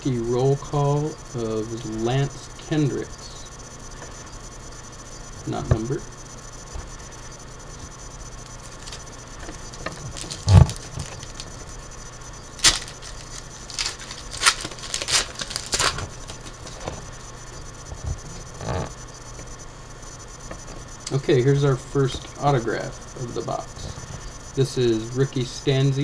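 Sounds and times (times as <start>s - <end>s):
foil wrapper tearing and crinkling: 8.7s - 9.0s, 10.0s - 11.5s, 12.6s - 16.9s.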